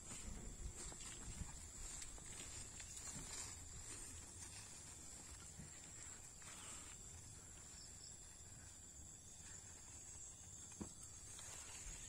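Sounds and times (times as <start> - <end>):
weeds rustling: 0.0 - 7.0, 11.2 - 12.0.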